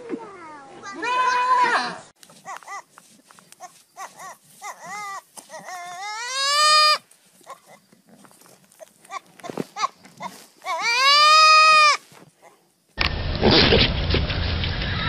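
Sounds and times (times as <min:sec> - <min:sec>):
goat kid bleating: 0:00.8 - 0:03.0, 0:03.6 - 0:07.8, 0:08.7 - 0:12.2.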